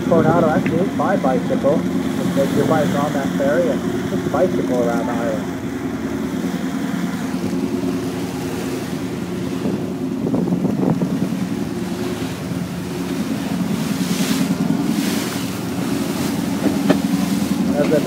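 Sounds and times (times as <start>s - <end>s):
boat engine drone: 0.0s - 18.0s
churning wake rushing: 0.0s - 18.0s
wind gusting on microphone: 5.4s - 18.0s.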